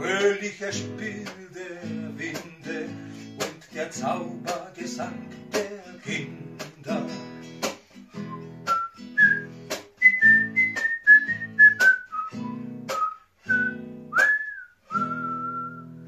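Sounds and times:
strummed classical guitar: 0.0 - 16.0
man whistling a tune: 8.1 - 16.0.

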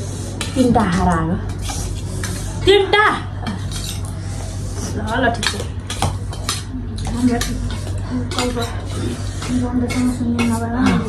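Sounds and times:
cutlery clinking on steel plates: 3.4 - 4.1, 5.1 - 11.0.

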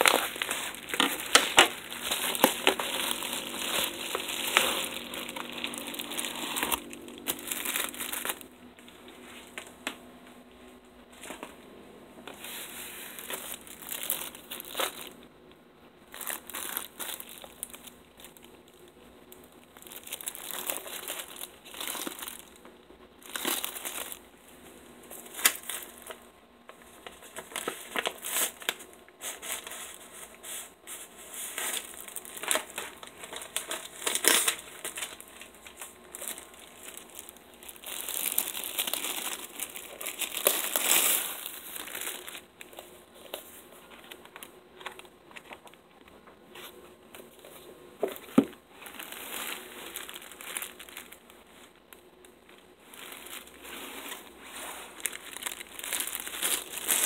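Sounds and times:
shrink wrap crinkling and tearing: 0.0 - 9.8, 12.3 - 15.2, 16.0 - 57.0.

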